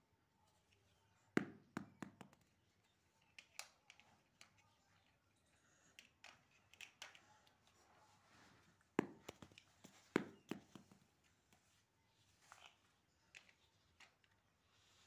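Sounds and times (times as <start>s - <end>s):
plastic toy blocks clicking: 3.2s - 4.6s, 5.9s - 7.3s.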